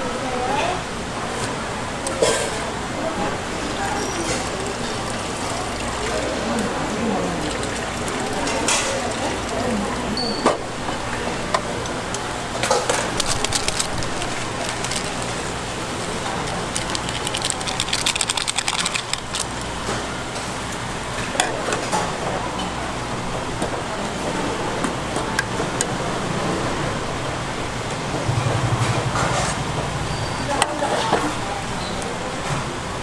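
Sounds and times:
seasoning packet rustling: 13.0s - 19.8s.

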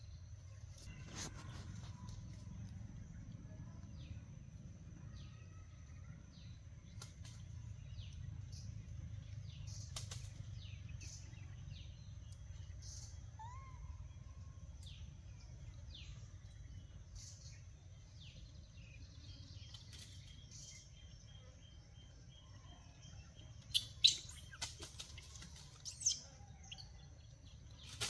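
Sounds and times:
birds chirping: 5.1s - 28.0s.

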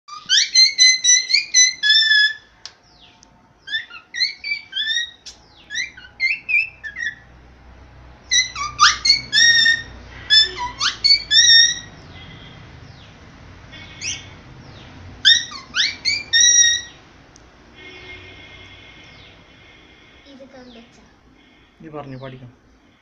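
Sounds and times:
cockatiel whistling: 0.1s - 2.5s, 3.7s - 7.2s, 8.3s - 11.9s, 13.8s - 14.3s, 15.2s - 17.0s.

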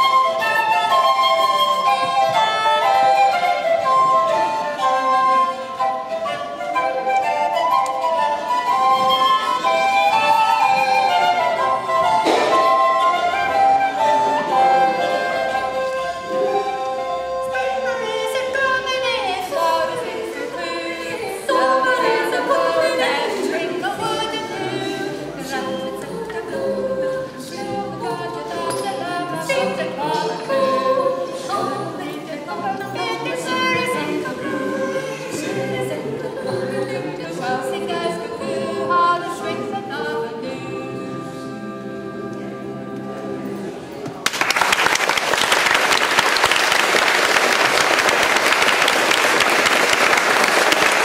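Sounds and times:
group singing a cappella: 8.8s - 16.7s, 17.5s - 44.0s.

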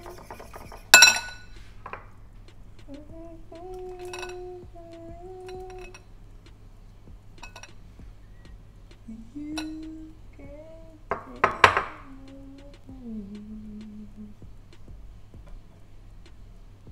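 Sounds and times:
person humming: 0.0s - 0.9s, 2.8s - 6.0s, 8.9s - 15.1s
dishes clattering: 0.0s - 2.0s
ceramic bowls clinking: 0.0s - 2.1s, 4.0s - 4.5s, 11.1s - 12.0s.

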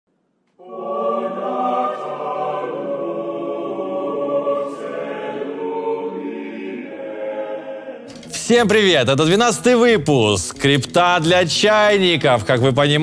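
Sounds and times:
choir singing held chords: 0.5s - 8.4s.

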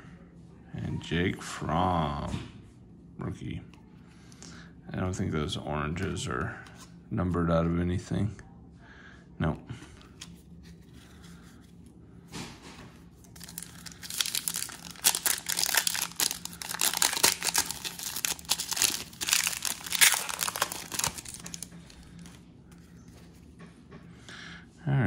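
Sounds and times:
foil wrapper tearing and crinkling: 13.2s - 22.4s.

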